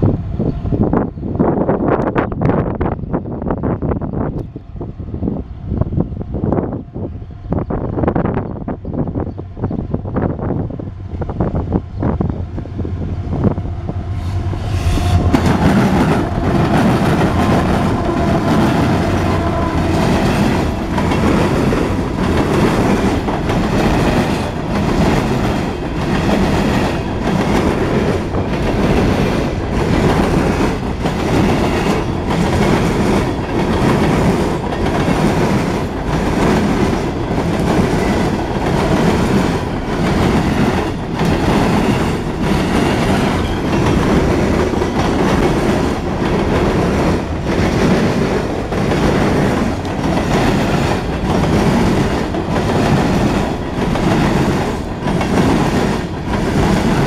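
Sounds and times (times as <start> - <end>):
diesel locomotive engine hum: 0.0 - 57.0
rail cars rumbling past: 0.0 - 57.0
wheels clicking over rail joints: 15.3 - 57.0.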